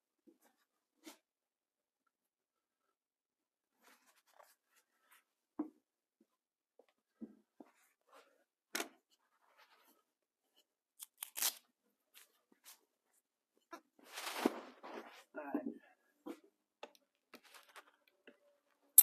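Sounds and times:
rustling: 14.0 - 15.3.

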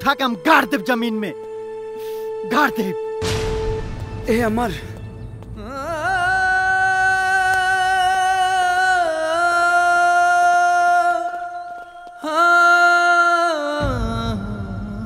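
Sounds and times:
singing voice holding long notes: 5.6 - 15.0.

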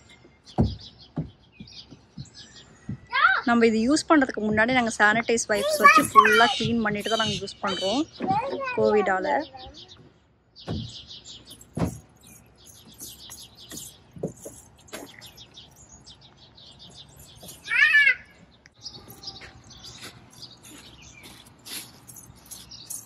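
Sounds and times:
small birds chirping: 0.0 - 23.0
dull knocks: 0.5 - 3.1, 10.6 - 15.2
loud high-pitched cry: 17.6 - 18.3.

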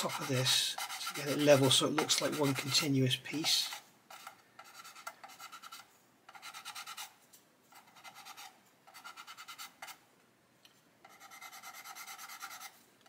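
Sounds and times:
sanding pad rasping on plastic: 0.0 - 2.9.

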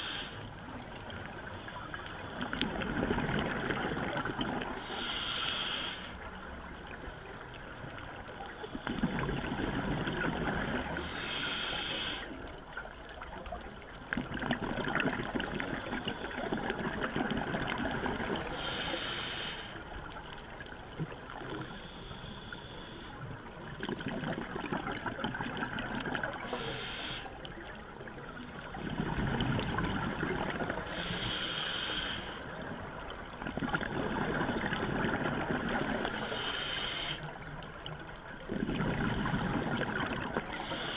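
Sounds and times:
regulator hiss on inhale: 0.0 - 2.8, 3.4 - 6.3, 10.7 - 12.5, 15.6 - 16.7, 18.0 - 20.5, 21.3 - 23.7, 26.2 - 27.6, 28.2 - 30.0, 30.7 - 34.6, 35.5 - 37.8, 40.4 - 40.9
bubbling exhaled air: 38.4 - 40.9.

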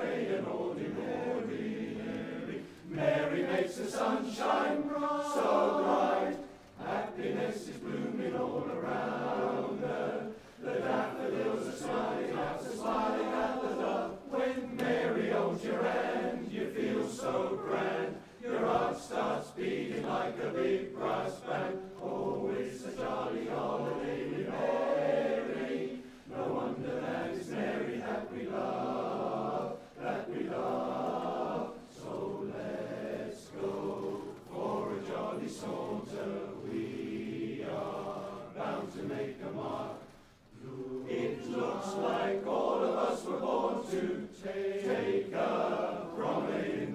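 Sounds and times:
barbershop chorus singing: 0.0 - 46.9
singers breathing: 10.3 - 10.6, 26.0 - 26.3.

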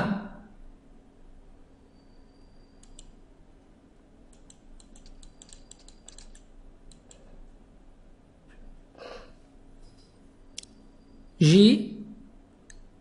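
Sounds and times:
faint low hum: 0.0 - 13.0
computer keys clicking: 2.7 - 3.2, 4.3 - 7.4.

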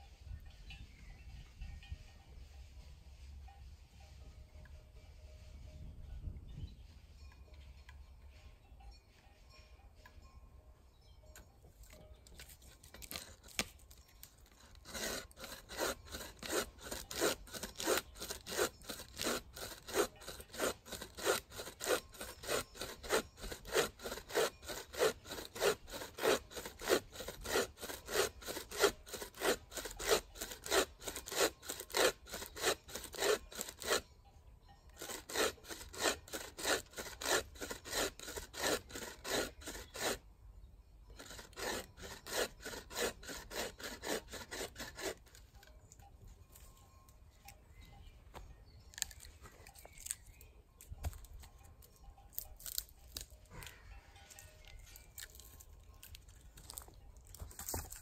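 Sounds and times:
hand saw cutting wood: 11.8 - 34.1, 34.9 - 40.2, 41.1 - 45.8, 51.0 - 58.0.

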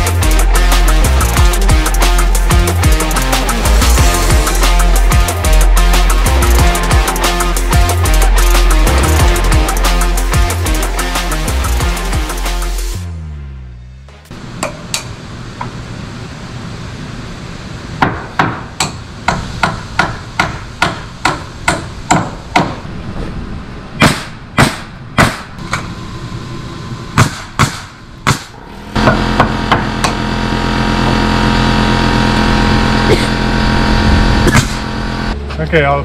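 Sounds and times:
steady machine hum: 25.6 - 35.5.

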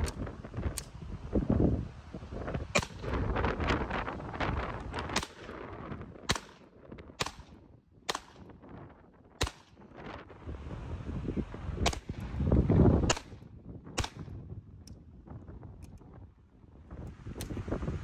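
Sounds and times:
wind rumbling on microphone: 0.0 - 18.0
pistol shots: 6.3 - 8.5, 9.4 - 9.8, 13.1 - 14.3.

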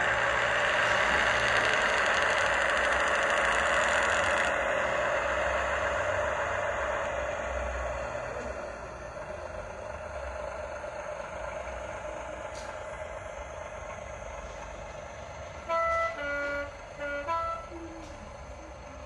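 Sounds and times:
diesel railbus engine from speaker: 0.0 - 19.0
two-tone horn blasts: 15.6 - 17.8.

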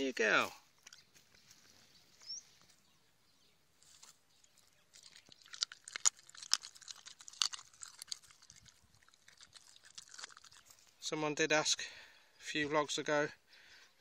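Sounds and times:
dog chewing and crunching: 4.4 - 11.0.

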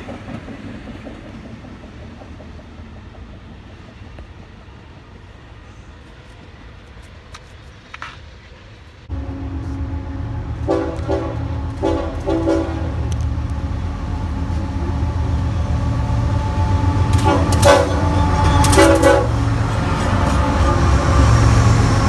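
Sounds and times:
diesel engines rumbling: 0.0 - 22.0
locomotive air horn: 9.1 - 13.2, 16.0 - 21.1.

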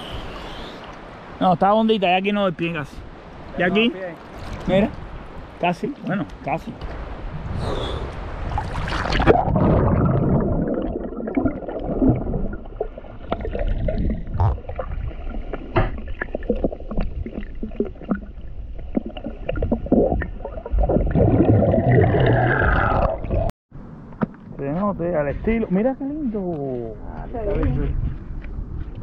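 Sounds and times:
water sloshing underwater: 4.2 - 7.2, 8.1 - 23.5.

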